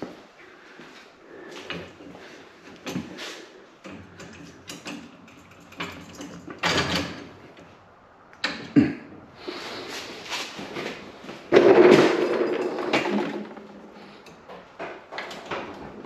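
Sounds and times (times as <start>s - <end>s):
clicks and knocks of handled tools: 3.8s - 7.7s, 12.3s - 15.8s.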